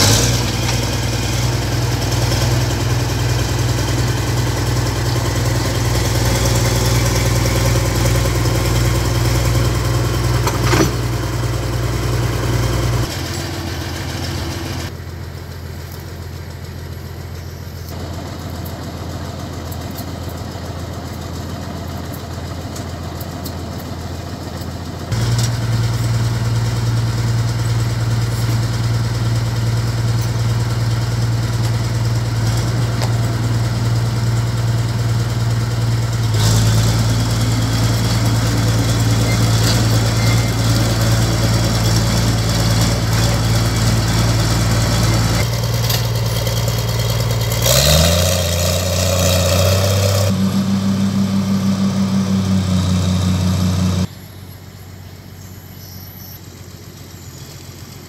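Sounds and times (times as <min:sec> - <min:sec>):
bulldozer diesel engine revving: 0:00.0 - 0:15.0, 0:23.9 - 0:54.2.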